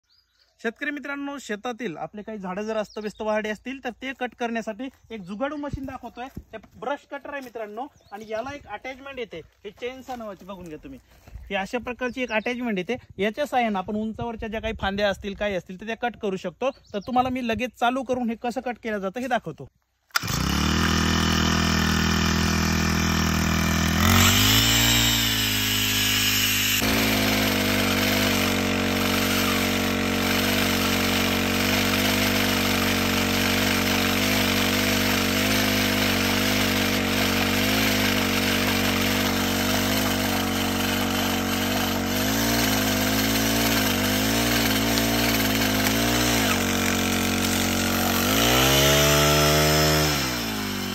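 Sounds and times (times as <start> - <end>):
chainsaw cutting branches: 20.0 - 50.9
petrol engine revving: 20.1 - 50.9.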